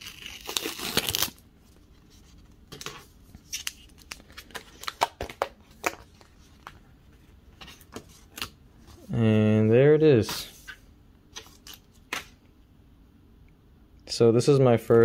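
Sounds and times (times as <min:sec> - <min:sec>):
paper wrap rustling: 0:00.0 - 0:06.8.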